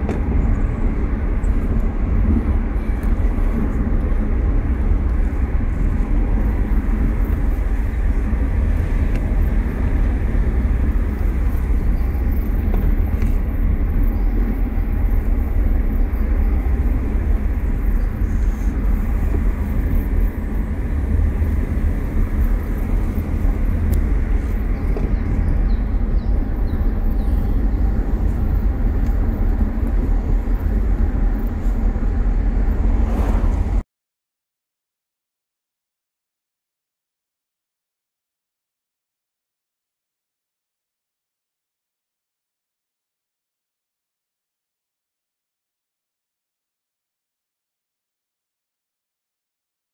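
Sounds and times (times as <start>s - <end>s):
road and engine noise in car: 0.0s - 33.8s.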